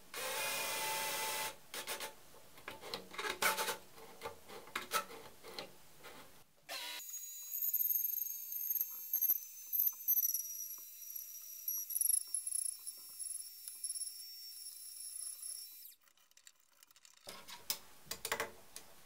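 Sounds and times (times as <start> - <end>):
router whining: 6.7 - 16.0.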